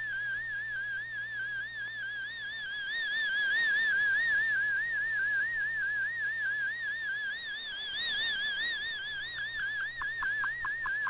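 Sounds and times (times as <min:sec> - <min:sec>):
faint steady hum: 0:00.0 - 0:11.0
warbling high radio tone: 0:02.3 - 0:11.0.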